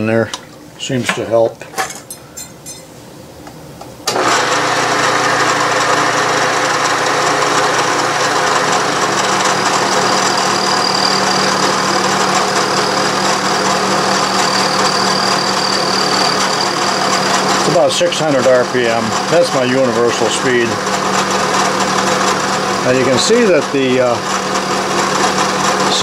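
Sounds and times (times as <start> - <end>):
milling machine cutting metal: 4.1 - 26.0
thin high tone: 9.8 - 11.8, 14.2 - 17.0.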